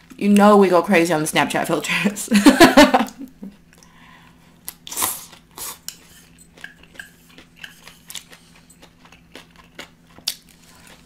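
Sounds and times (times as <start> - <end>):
chewing: 4.6 - 11.0
slurping food: 4.8 - 6.4.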